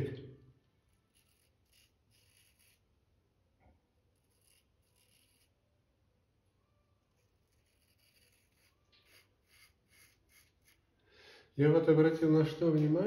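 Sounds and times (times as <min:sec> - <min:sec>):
razor scraping stubble: 0:00.8 - 0:03.0, 0:04.1 - 0:05.6, 0:07.1 - 0:10.9.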